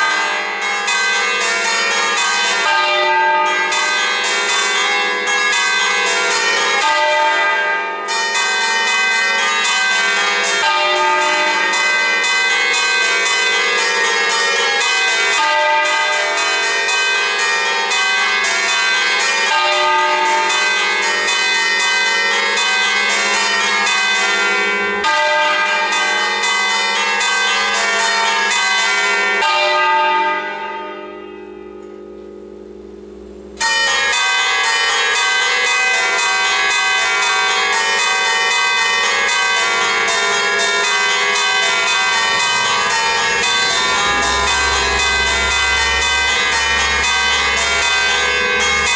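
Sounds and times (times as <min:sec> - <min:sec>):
church bells pealing: 0:00.0 - 0:48.9
bells humming: 0:31.0 - 0:48.9.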